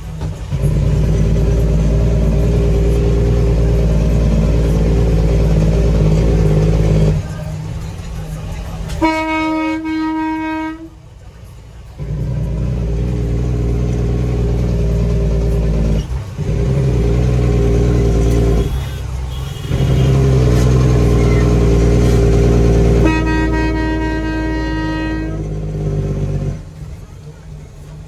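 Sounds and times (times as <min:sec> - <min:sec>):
diesel engine running: 0:00.0 - 0:28.0
truck air horn: 0:09.0 - 0:11.0, 0:18.0 - 0:26.0.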